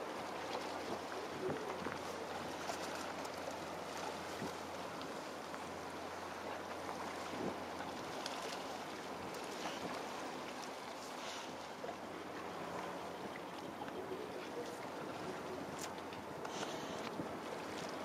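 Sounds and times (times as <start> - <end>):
water noise: 0.0 - 18.0
wind: 0.0 - 18.0.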